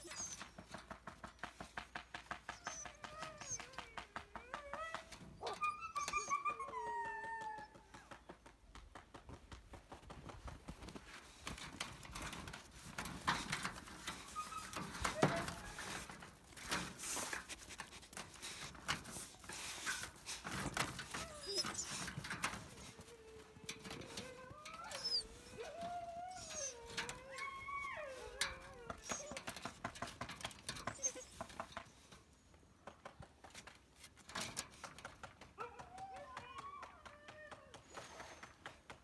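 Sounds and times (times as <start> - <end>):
dog whining: 0.0 - 0.7, 2.4 - 8.0, 13.4 - 17.0, 18.6 - 31.7
paws scratching wire fence: 9.7 - 32.2.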